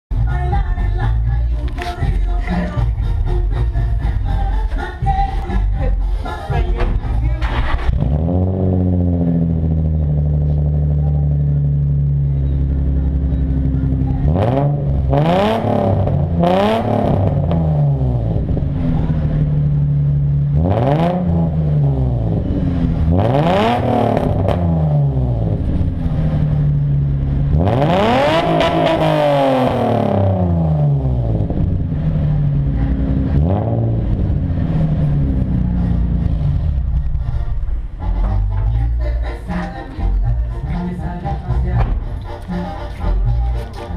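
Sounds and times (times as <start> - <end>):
car engine idling and revving: 0.1 - 43.9.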